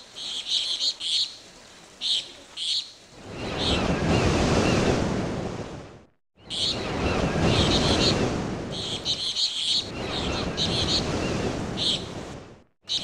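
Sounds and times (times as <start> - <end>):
surf washing in: 0.0 - 13.0
birds chirping: 6.4 - 12.2.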